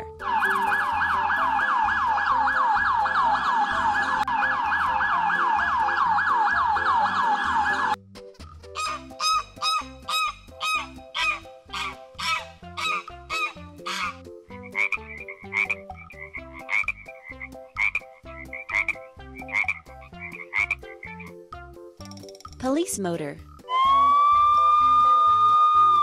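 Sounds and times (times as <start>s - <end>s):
toy electronic warbling siren: 0.2s - 8.0s, 23.7s - 26.0s
toy frog electronic croaking: 12.2s - 21.3s.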